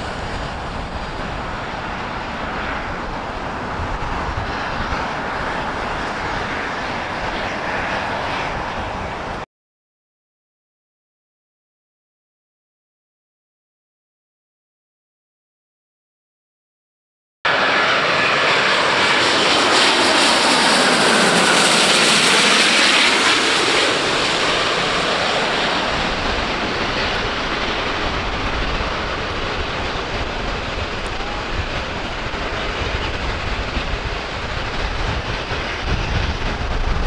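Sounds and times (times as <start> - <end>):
jet airliner passing overhead: 0.0 - 9.5, 17.5 - 37.0
plane landing rumble: 0.0 - 9.5, 17.5 - 37.0.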